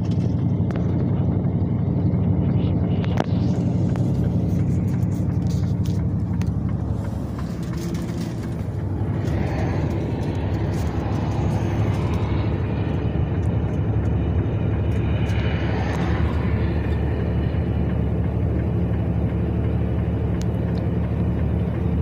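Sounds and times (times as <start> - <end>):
car engine hum: 0.0 - 22.0
tyre noise on road: 0.0 - 22.0.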